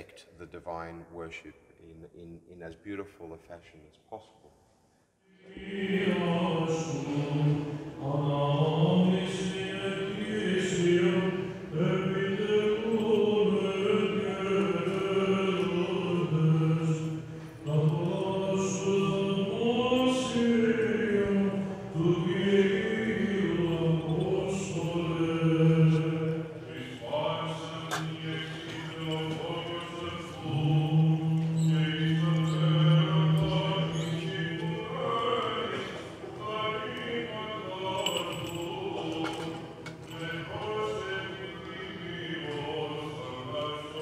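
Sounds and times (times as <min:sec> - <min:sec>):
men singing chant: 0:05.3 - 0:44.0.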